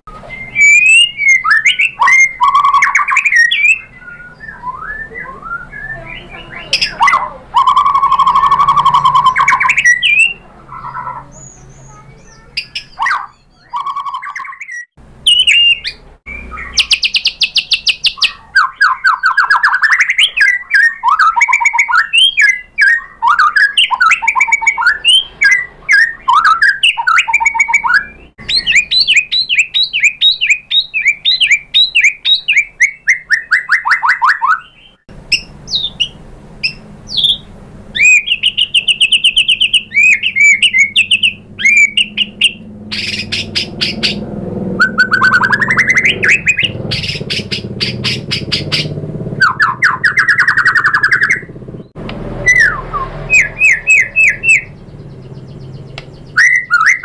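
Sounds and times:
bird singing trills and whistles: 0.1 - 57.0.

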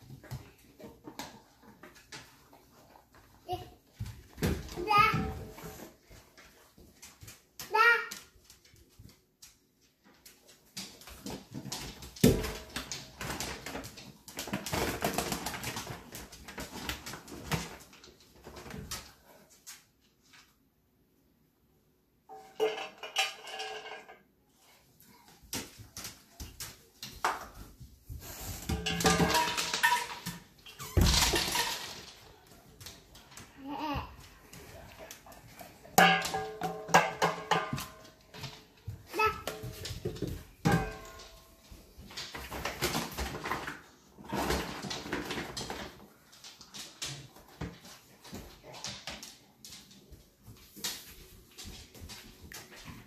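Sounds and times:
metal dog bowl clattering: 22.3 - 24.2, 28.6 - 32.3, 35.9 - 38.6, 40.6 - 41.5
kibble rattling on hard floor: 28.6 - 33.3.

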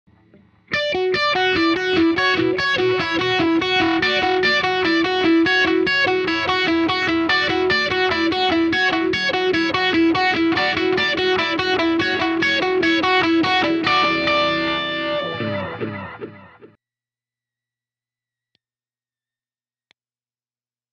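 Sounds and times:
electric guitar with phaser: 0.1 - 16.8.

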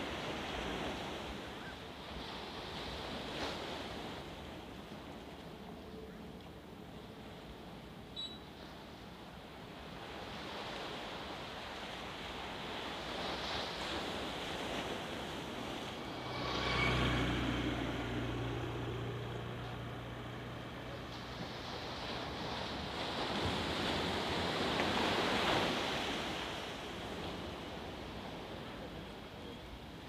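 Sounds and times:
sea waves breaking: 0.0 - 5.8, 6.5 - 29.3
low engine-like hum: 14.6 - 24.1.

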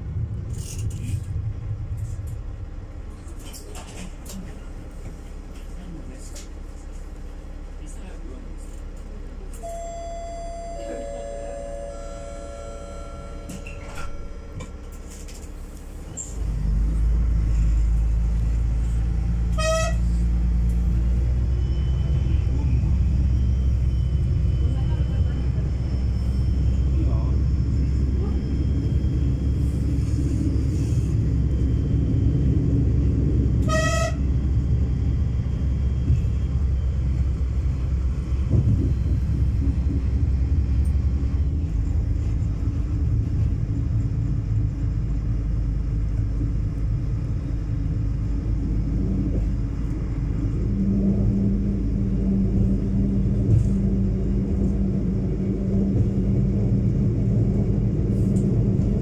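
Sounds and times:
railcar engine rumble: 0.0 - 59.0
steady low hum: 0.0 - 59.0
train horn toot: 9.6 - 13.9, 19.5 - 20.3, 33.6 - 34.4.

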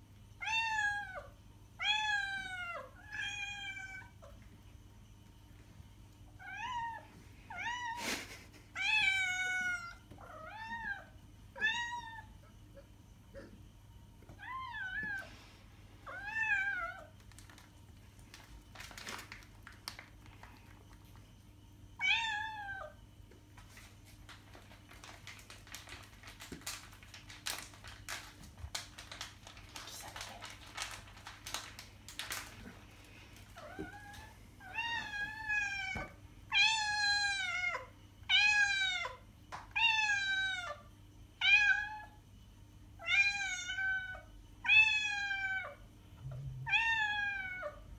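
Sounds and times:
foil bag crinkling: 17.0 - 21.2, 23.6 - 33.7.

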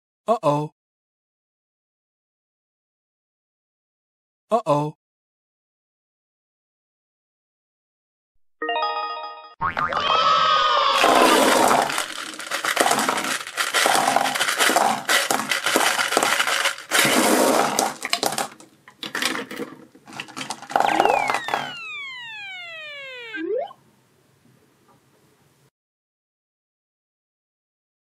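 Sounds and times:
plastic balls clattering on table: 11.0 - 21.8
falling whistle sound effect: 20.9 - 23.8.

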